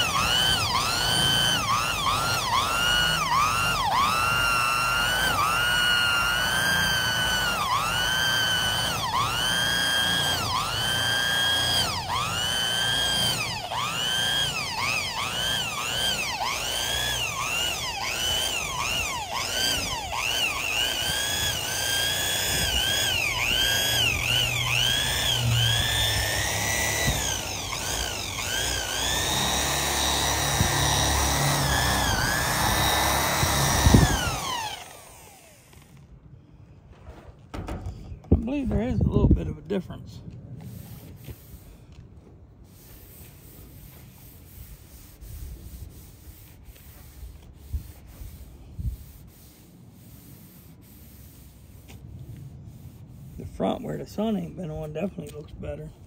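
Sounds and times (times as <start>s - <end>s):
electric buffer motor whine: 0.0s - 36.1s.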